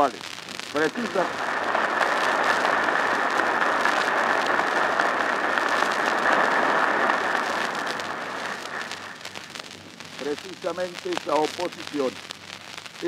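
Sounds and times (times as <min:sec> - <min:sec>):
audience applauding: 0:00.8 - 0:09.4.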